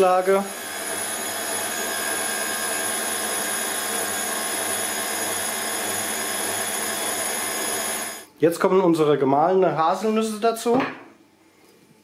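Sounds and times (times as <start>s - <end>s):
stand mixer whirring: 0.0s - 8.3s.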